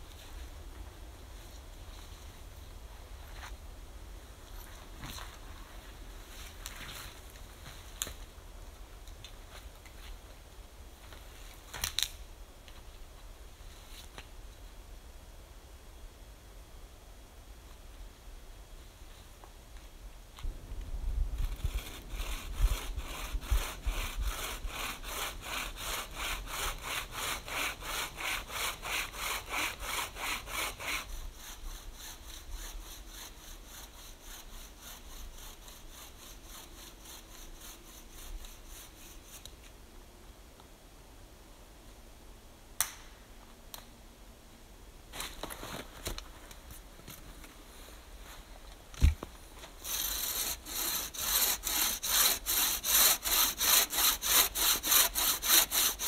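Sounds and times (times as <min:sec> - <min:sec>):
saw cutting through log: 0:21.6 - 0:39.4, 0:49.8 - 0:56.0.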